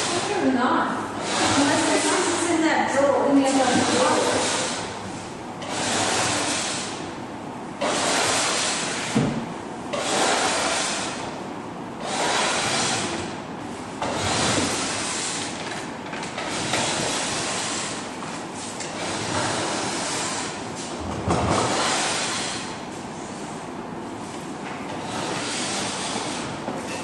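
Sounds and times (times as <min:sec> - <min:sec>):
hand scraping painted surface: 0:01.2 - 0:02.6, 0:03.4 - 0:07.0, 0:07.8 - 0:09.2, 0:09.9 - 0:11.4, 0:12.0 - 0:13.4, 0:14.0 - 0:15.7, 0:16.4 - 0:23.6, 0:24.2 - 0:27.0.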